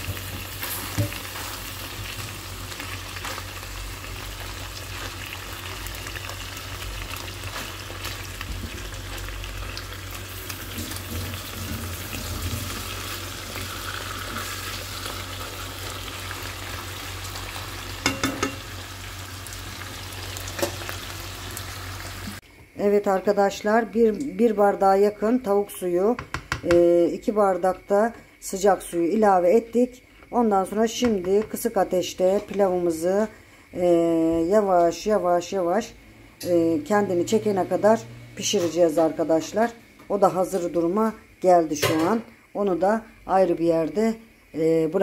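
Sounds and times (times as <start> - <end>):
chicken sizzling in oil: 0.0 - 22.4
tongs clicking on pan: 18.0 - 18.7.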